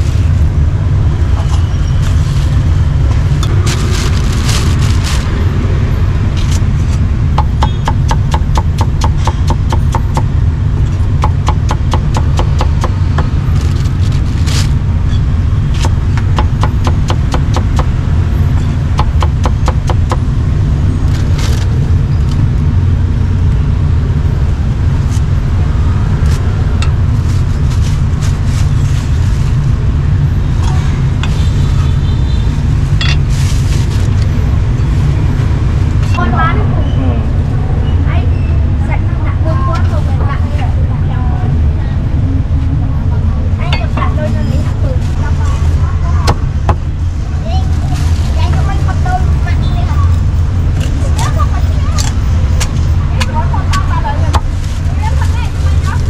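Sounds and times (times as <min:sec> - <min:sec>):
steady low rumble: 0:00.0 - 0:31.8
cleaver chopping on wooden block: 0:07.4 - 0:10.3, 0:11.2 - 0:13.3, 0:15.8 - 0:18.0, 0:19.0 - 0:20.2.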